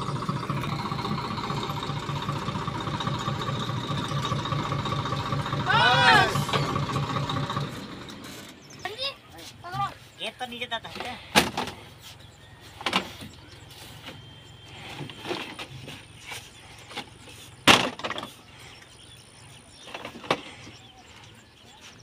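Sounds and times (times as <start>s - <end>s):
plastic crates clattering: 11.0s - 11.9s.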